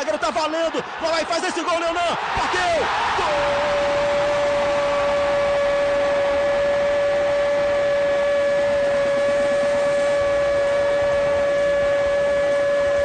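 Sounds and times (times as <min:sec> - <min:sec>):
commentator shouting goal: 0:00.0 - 0:04.4
crowd noise: 0:00.0 - 0:07.6.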